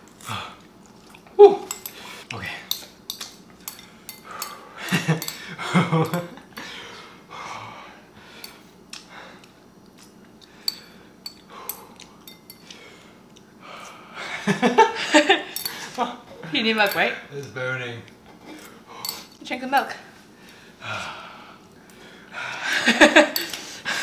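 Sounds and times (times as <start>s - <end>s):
breathing: 6.6s - 9.5s, 10.4s - 12.0s, 12.6s - 14.3s, 20.3s - 22.8s.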